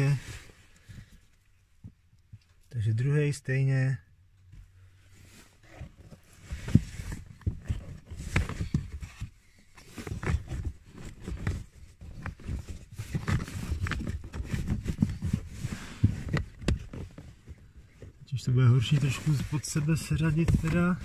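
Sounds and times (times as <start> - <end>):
air filter scraping and rustling: 5.0 - 21.0.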